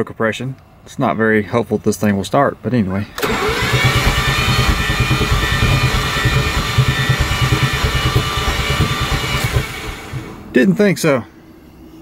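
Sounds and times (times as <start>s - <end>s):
engine cranking on starter: 3.1s - 10.5s.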